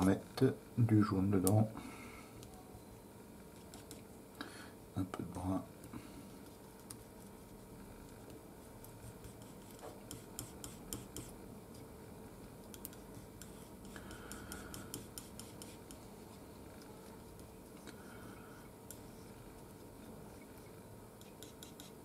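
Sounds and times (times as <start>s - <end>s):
palette knife scraping and tapping: 8.3s - 11.4s, 12.7s - 16.1s, 21.2s - 22.0s.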